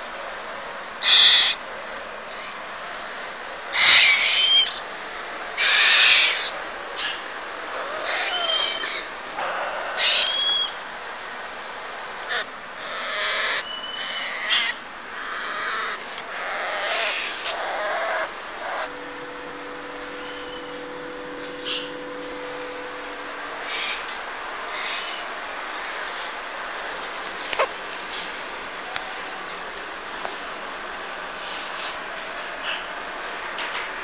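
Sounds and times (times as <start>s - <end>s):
parrot chicks begging calls: 1.0s - 1.6s, 3.7s - 4.9s, 5.5s - 10.8s, 12.2s - 26.0s
thin whistled notes: 18.9s - 24.0s.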